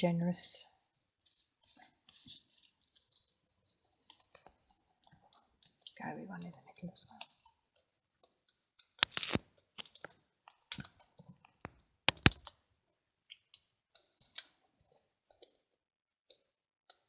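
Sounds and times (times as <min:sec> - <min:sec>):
fingers tapping and clicking paper: 0:02.8 - 0:12.6.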